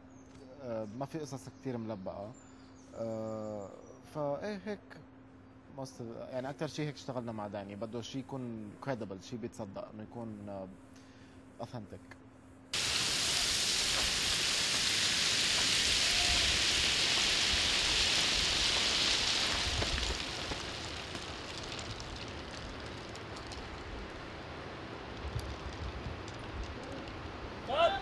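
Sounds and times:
gravel rushing and rattling: 12.8s - 27.9s
stones clicking: 13.8s - 24.3s, 25.0s - 27.3s.

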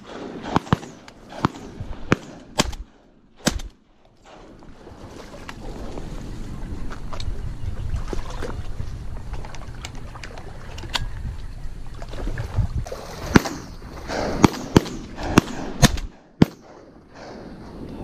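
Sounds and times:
wind rumbling on microphone: 0.0s - 18.0s
water sloshing: 3.4s - 15.4s.

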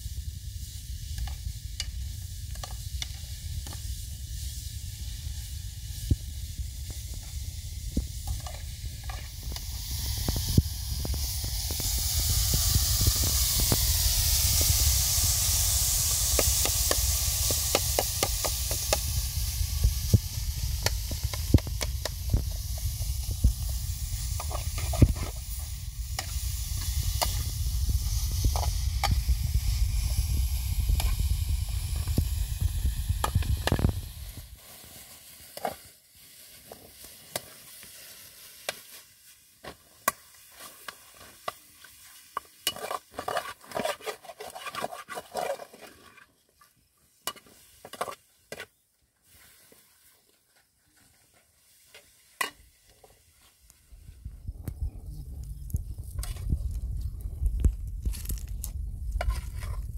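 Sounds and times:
greens sizzling in pan: 0.0s - 44.7s, 47.0s - 48.6s, 49.2s - 54.2s, 55.5s - 59.9s
low rumble: 18.6s - 34.5s, 53.9s - 59.9s
metal spoon scraping pan: 42.6s - 46.1s.

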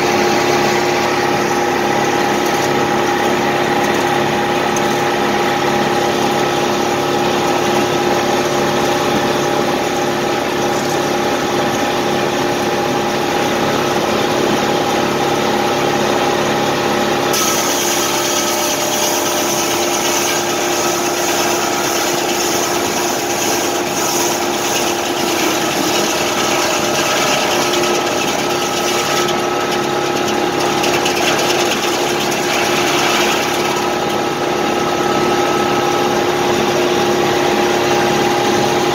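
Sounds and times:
tractor engine: 0.0s - 38.9s
spinning saw blade hum: 17.3s - 36.9s.

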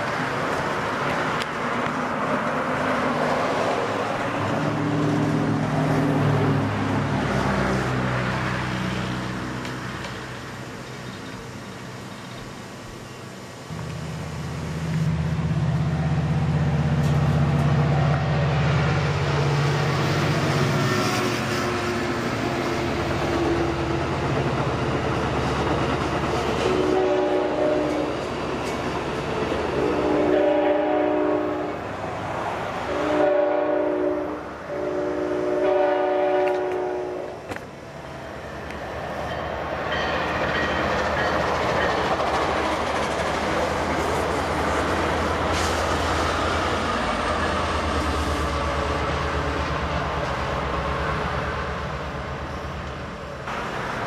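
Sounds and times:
approaching train rumble: 0.0s - 54.0s
train air horn blasts: 26.6s - 28.2s, 29.8s - 31.8s, 32.9s - 37.4s.

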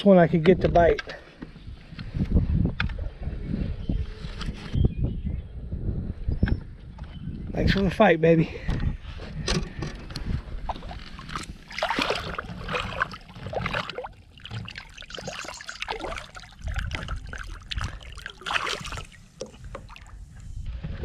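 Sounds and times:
fish splashing in water: 11.2s - 20.4s.

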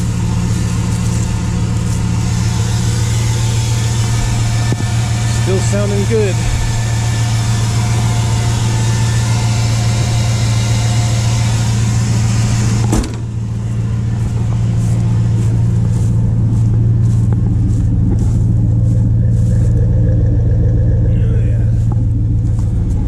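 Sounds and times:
footsteps in dry leaves: 0.0s - 20.8s, 21.7s - 23.0s
pickup truck engine idling: 0.0s - 23.0s
thump: 12.8s - 13.3s.

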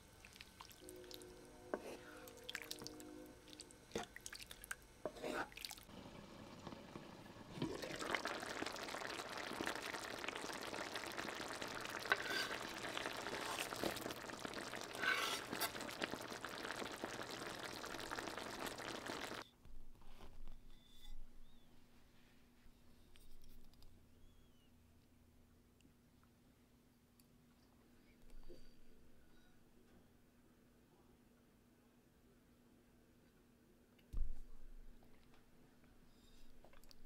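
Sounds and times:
water pouring: 2.3s - 4.8s, 5.5s - 19.4s.

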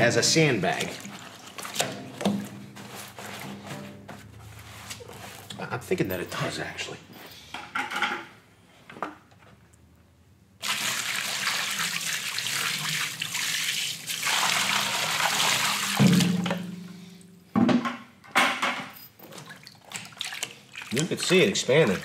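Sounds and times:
water pouring and splashing: 0.0s - 3.0s, 10.6s - 16.7s, 19.2s - 22.0s.

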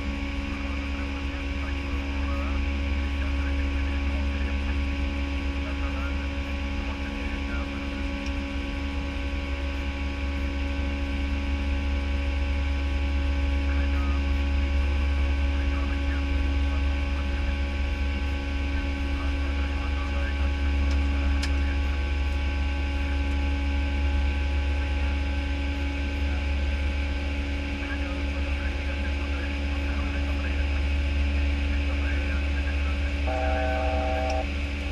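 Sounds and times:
airplane cockpit rumble: 0.0s - 34.9s
steady hum: 0.0s - 34.9s.

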